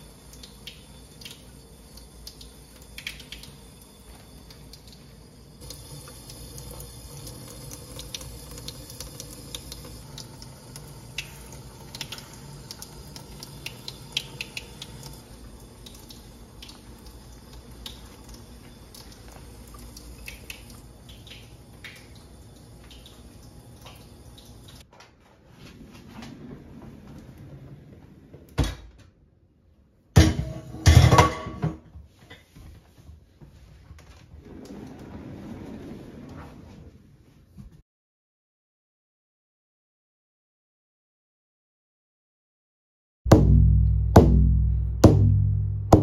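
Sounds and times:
tap water running into sink: 0:00.0 - 0:24.8
sharp knock: 0:43.3 - 0:46.0.

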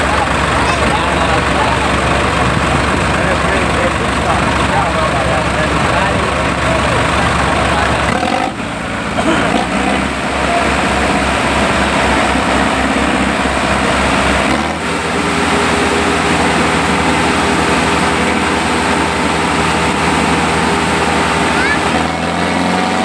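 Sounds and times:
second tractor engine: 0:00.0 - 0:23.0
tractor diesel engine running hard: 0:00.0 - 0:23.0.

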